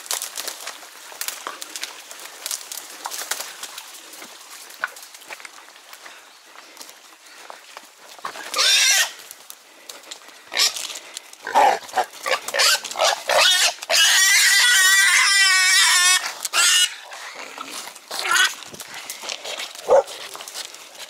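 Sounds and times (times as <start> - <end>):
wild boar squealing: 8.4 - 9.2, 11.4 - 18.6.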